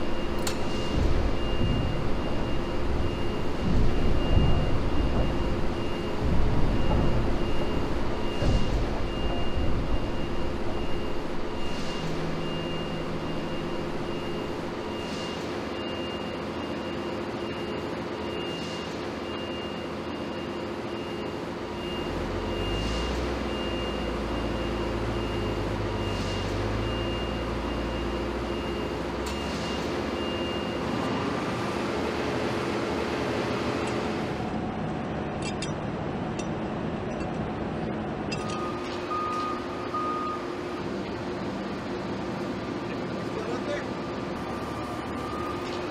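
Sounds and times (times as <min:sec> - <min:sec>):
machinery hum: 0:00.0 - 0:22.6
high-pitched warning beep: 0:00.0 - 0:31.2, 0:38.3 - 0:40.8, 0:43.9 - 0:45.9.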